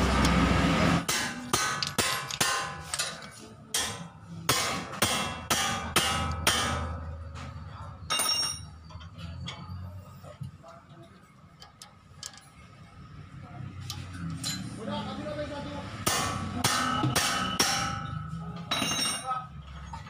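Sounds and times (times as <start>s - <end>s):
loud steady noise: 0.0s - 2.9s
metal parts clinking: 1.7s - 3.5s, 8.1s - 9.7s, 11.6s - 12.8s.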